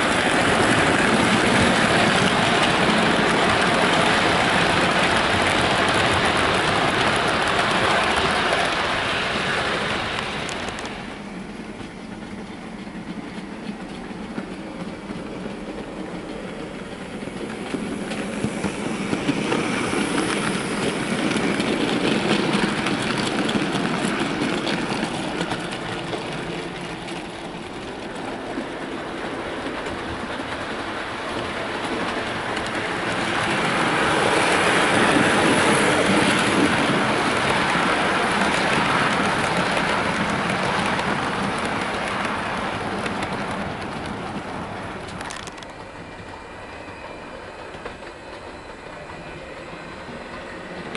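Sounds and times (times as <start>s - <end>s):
model train running rumble: 0.0s - 50.9s
model train wheels clicking: 11.8s - 46.3s.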